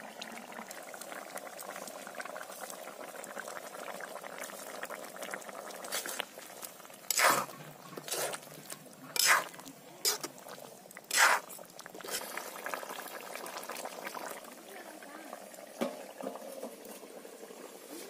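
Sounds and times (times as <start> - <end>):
curry bubbling in a pan: 0.0 - 18.0
metal spatula scraping a pan: 7.1 - 8.5, 9.1 - 10.4, 11.1 - 11.5.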